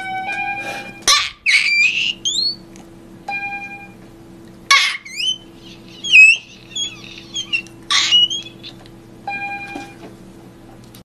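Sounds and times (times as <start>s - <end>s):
steady low hum: 0.0s - 11.0s
high-pitched chirps and squeaks: 1.1s - 2.6s, 4.7s - 8.9s.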